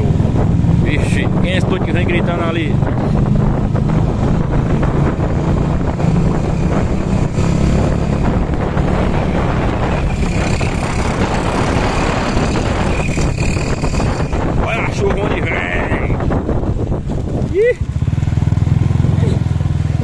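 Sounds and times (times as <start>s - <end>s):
motorcycle engine running: 0.0s - 20.0s
wind noise on microphone: 0.0s - 20.0s.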